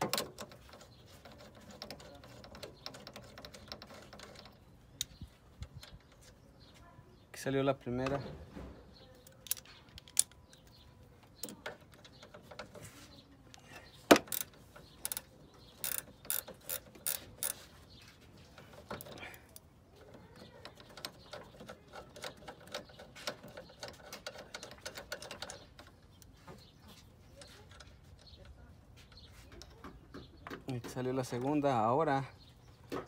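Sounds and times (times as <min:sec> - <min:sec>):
socket ratchet clicking: 0:14.2 - 0:17.6.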